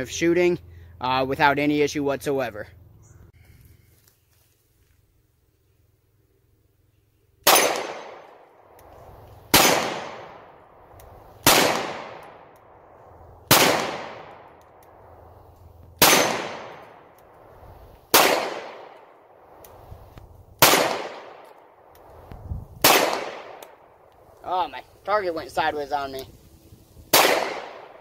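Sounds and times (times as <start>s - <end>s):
pistol shots echoing: 7.4s - 8.8s, 9.5s - 10.8s, 11.4s - 15.0s, 16.0s - 17.2s, 18.1s - 19.6s, 20.6s - 21.9s, 22.8s - 23.8s, 27.1s - 28.0s.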